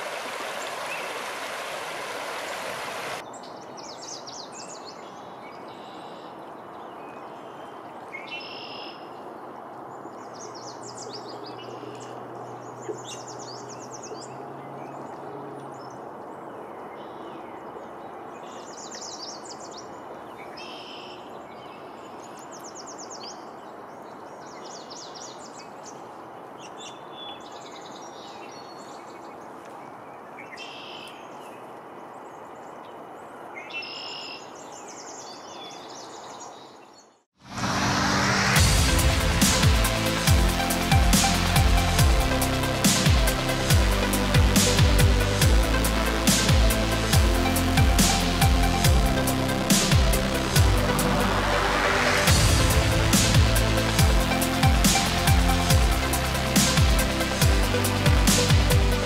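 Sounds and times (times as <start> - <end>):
faint hiss: 0.0 - 3.2
stream running over rocks: 0.0 - 3.2
songbirds chirping and trilling: 3.1 - 37.2.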